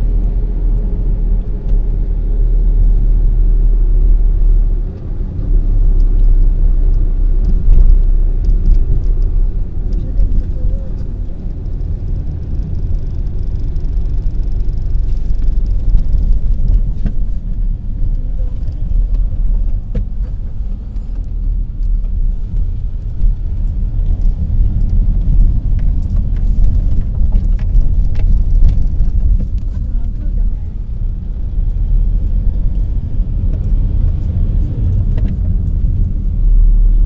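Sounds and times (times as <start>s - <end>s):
road and wind noise in car: 0.0s - 37.0s.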